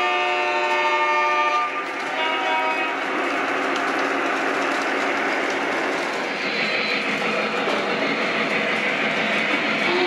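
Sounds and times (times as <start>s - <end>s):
model train wheels on rail: 0.0s - 10.0s.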